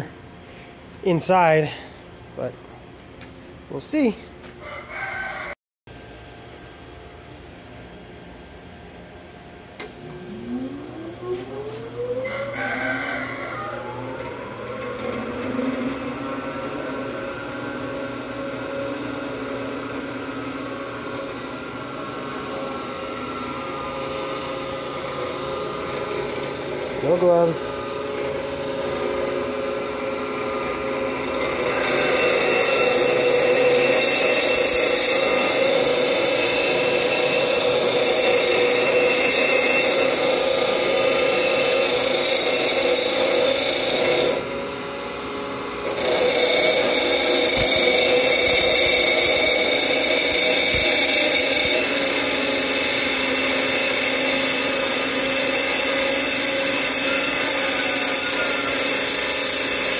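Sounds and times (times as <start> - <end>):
grinder grinding steel: 9.8 - 19.0, 31.0 - 44.5, 45.8 - 59.9
grinding wheel humming: 9.8 - 59.9.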